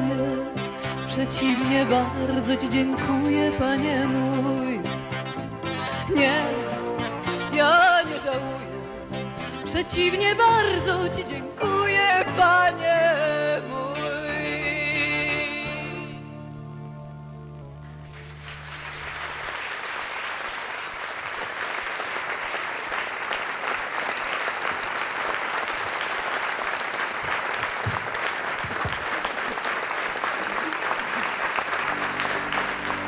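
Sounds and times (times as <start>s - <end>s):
band playing music: 0.0s - 19.5s, 31.7s - 33.0s
audience applauding: 17.9s - 33.0s.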